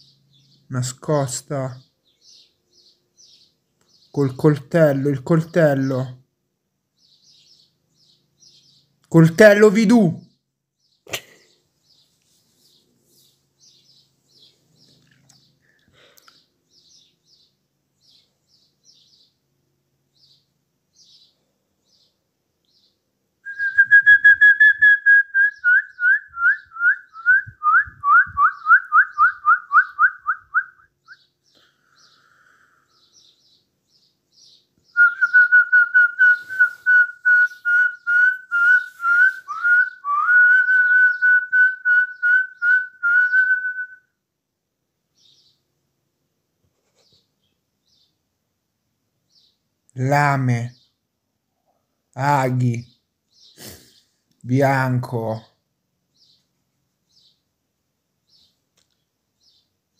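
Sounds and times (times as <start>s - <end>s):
faint bird chirps: 0.0s - 6.2s, 6.9s - 9.4s, 10.1s - 44.2s, 45.1s - 45.7s, 46.7s - 48.2s, 49.2s - 55.4s, 56.1s - 57.5s, 58.2s - 59.8s
person whistling short notes: 35.1s - 43.9s.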